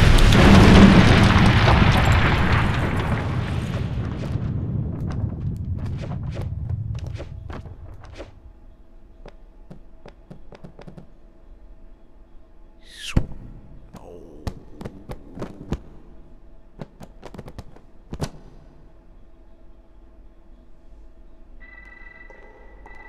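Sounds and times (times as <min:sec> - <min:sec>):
faint hum: 0:06.4 - 0:22.2.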